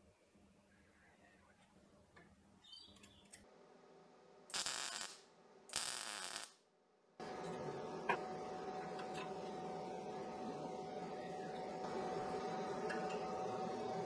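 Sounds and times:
welding arc crackle: 0:04.5 - 0:06.6
steady hum: 0:07.2 - 0:14.0.

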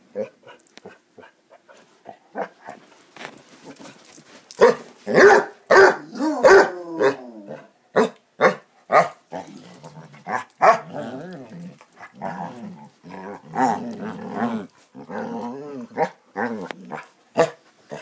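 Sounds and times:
dogs barking: 0:04.6 - 0:07.2, 0:08.0 - 0:09.2, 0:10.3 - 0:10.9.

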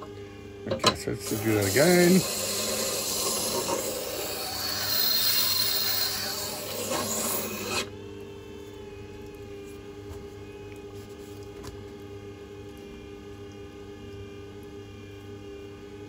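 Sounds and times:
grinder motor humming: 0:00.7 - 0:11.3
knife grinding on wet stone: 0:01.7 - 0:07.9.

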